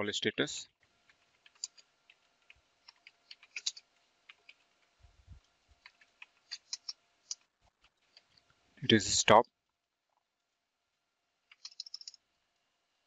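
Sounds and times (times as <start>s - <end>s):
keyboard keystrokes: 11.5s - 12.2s.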